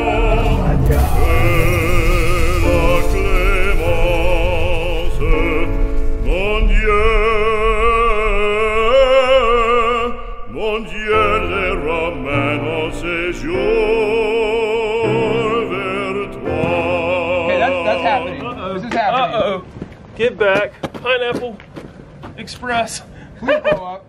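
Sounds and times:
operatic singing with instruments: 0:00.0 - 0:18.8.

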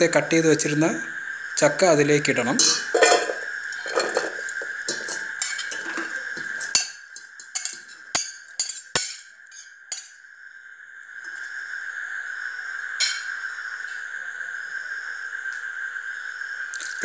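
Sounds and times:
fruit clattering into metal pot: 0:02.5 - 0:10.1, 0:13.0 - 0:13.3.

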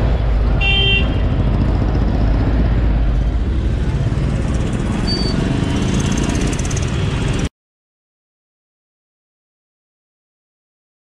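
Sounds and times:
motorcycle engine rumble: 0:00.0 - 0:07.5
road noise: 0:00.0 - 0:07.5.

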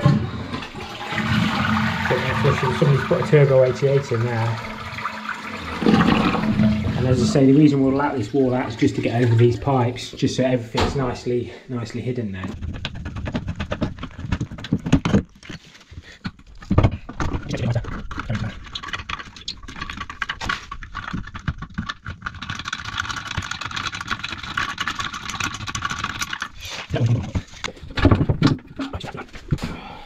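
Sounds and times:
tools clicking and knocking on pipes: 0:12.4 - 0:29.8
fast steady rattling: 0:12.5 - 0:15.4, 0:17.0 - 0:29.1.

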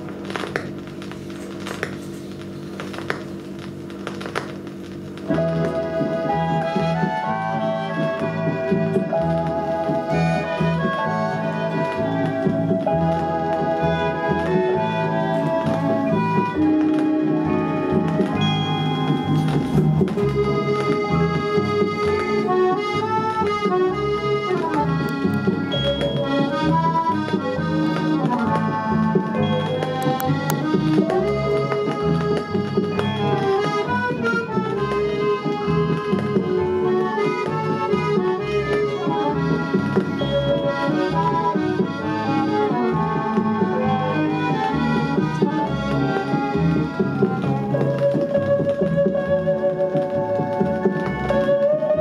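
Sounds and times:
music from a vinyl record: 0:00.0 - 0:52.0.

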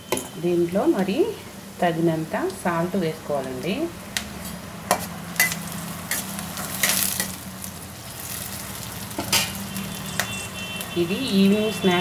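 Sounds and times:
vegetables sizzling in hot oil: 0:00.0 - 0:12.0
metal spoon scraping pan: 0:04.4 - 0:07.4.

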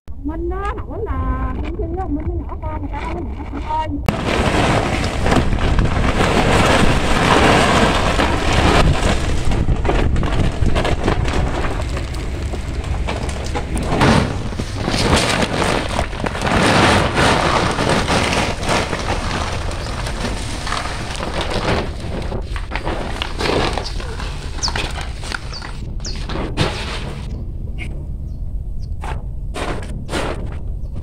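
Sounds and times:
steady low rumble: 0:00.1 - 0:31.0
chili peppers pouring from sack: 0:04.1 - 0:27.3.

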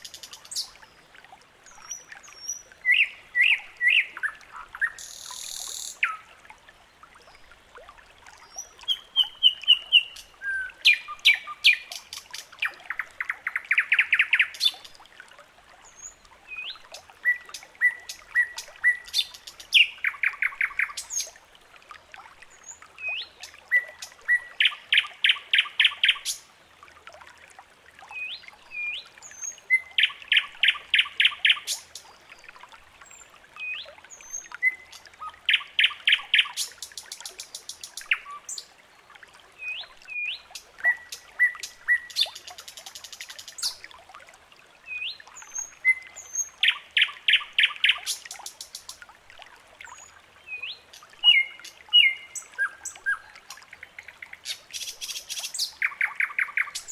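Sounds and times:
bird song phrase: 0:01.8 - 0:06.2, 0:33.1 - 0:38.7, 0:49.9 - 0:56.9.

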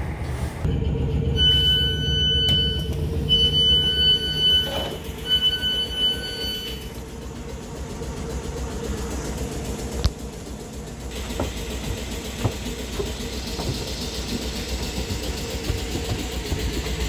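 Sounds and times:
train hum and low rumble: 0:00.0 - 0:17.0
high door alert beeps: 0:01.3 - 0:06.9.

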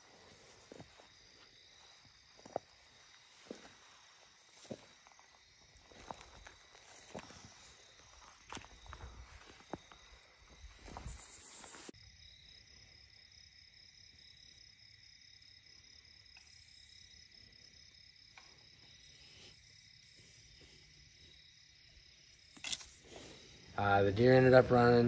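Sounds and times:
crickets and night insects: 0:00.0 - 0:25.0.

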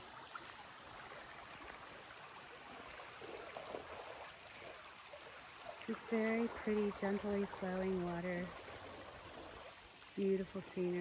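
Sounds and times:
creek water flowing over rocks: 0:00.0 - 0:11.0.

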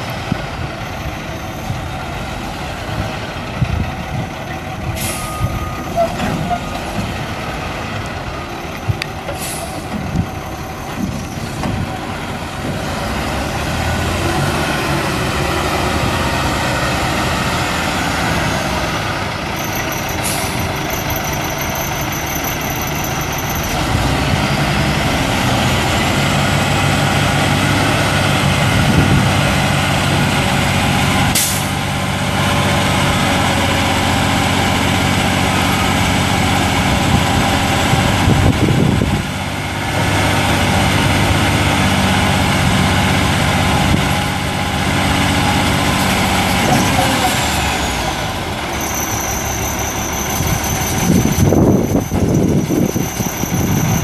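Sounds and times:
diesel truck engine running: 0:00.0 - 0:54.0
air brake releases: 0:05.0 - 0:06.2, 0:09.3 - 0:10.0, 0:20.1 - 0:20.8, 0:31.4 - 0:31.8.

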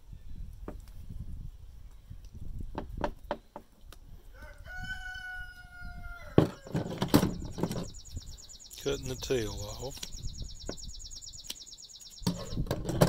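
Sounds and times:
rooster crowing: 0:04.3 - 0:06.8
knocks and clatter on table: 0:12.2 - 0:13.0.

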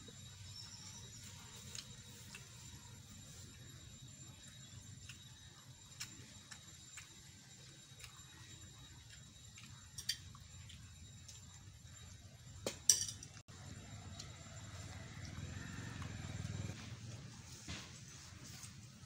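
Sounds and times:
metal tumbler clinking: 0:12.7 - 0:13.4.

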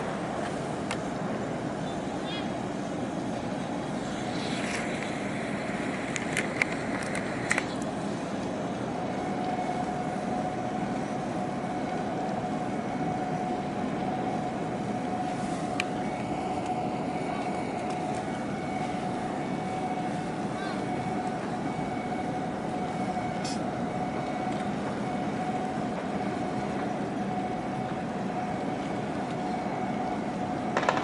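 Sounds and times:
boat engine rumble: 0:00.0 - 0:31.0
faint steady hum: 0:00.0 - 0:31.0
sharp pops: 0:30.8 - 0:31.0.

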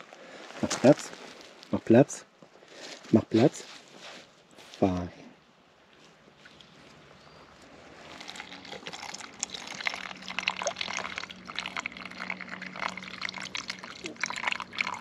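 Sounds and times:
water pouring into cup: 0:08.0 - 0:15.0
dog lapping water: 0:08.2 - 0:15.0.

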